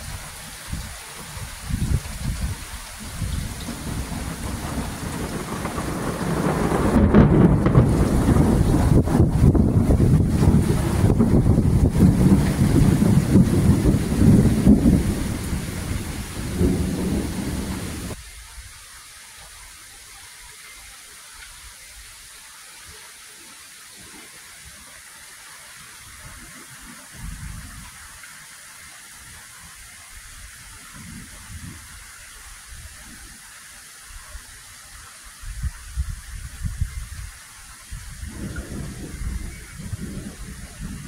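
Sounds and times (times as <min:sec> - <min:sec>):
wind buffeting microphone: 0:00.0 - 0:18.8, 0:26.1 - 0:28.0, 0:30.2 - 0:32.1, 0:35.4 - 0:41.0
rain hiss: 0:00.0 - 0:41.0
thunder rumbling: 0:01.6 - 0:18.2, 0:38.0 - 0:41.0.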